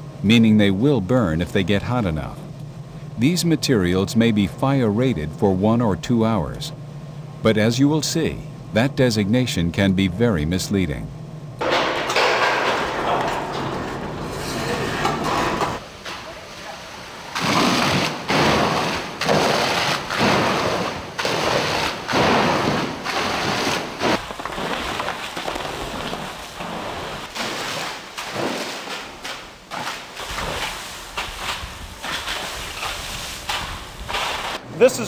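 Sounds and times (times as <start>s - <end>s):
fire hose water rushing: 16.2s - 34.6s.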